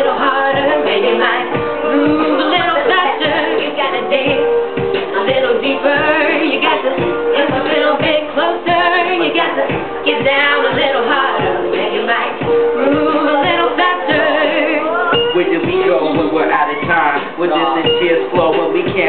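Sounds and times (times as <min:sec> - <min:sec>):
person singing: 0:00.0 - 0:19.0
hip hop drum beat: 0:00.5 - 0:09.0, 0:09.6 - 0:19.0.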